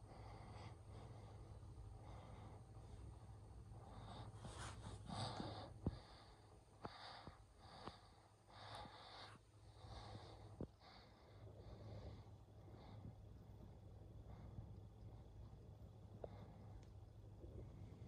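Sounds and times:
faint room hum: 0.0s - 18.0s
soft puffs of noise: 3.9s - 11.2s.

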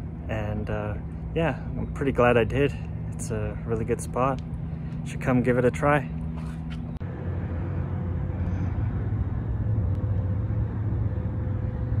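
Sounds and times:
faint even hum: 0.0s - 12.0s
steady low rumble: 0.0s - 12.0s.

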